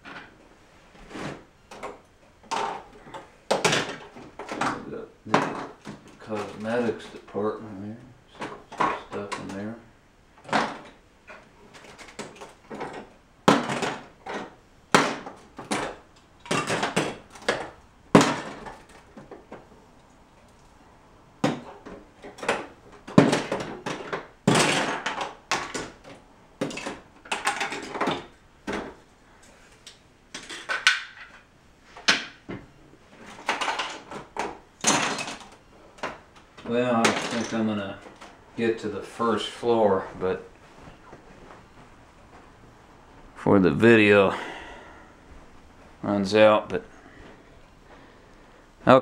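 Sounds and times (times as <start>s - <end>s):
plastic bricks clattering: 11.7s - 19.6s, 21.4s - 29.1s, 30.3s - 32.4s, 33.2s - 38.4s.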